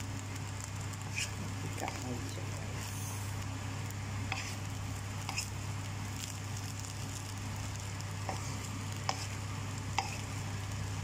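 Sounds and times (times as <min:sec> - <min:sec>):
faint sizzle: 0:00.0 - 0:11.0
steady low hum: 0:00.0 - 0:11.0
spatula scraping rice in pan: 0:00.9 - 0:02.1, 0:04.2 - 0:05.6, 0:06.2 - 0:10.7.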